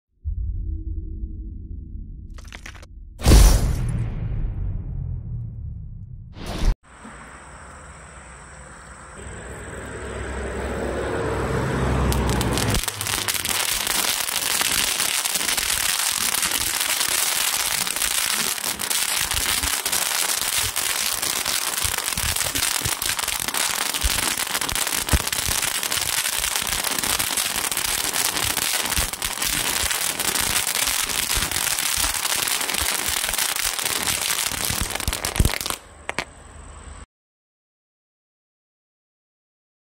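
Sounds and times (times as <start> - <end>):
firework hissing and crackling: 12.0 - 36.3.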